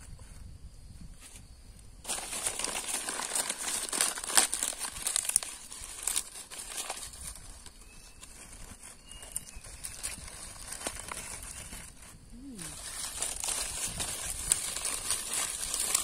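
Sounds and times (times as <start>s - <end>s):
dry leaves crumpling: 2.0s - 16.0s.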